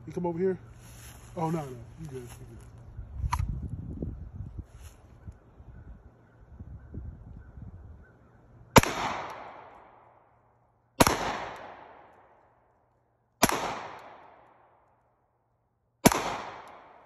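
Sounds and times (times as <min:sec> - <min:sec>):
pistol shots echoing: 0:08.8 - 0:10.1, 0:11.0 - 0:12.4, 0:13.4 - 0:14.8, 0:16.0 - 0:17.0.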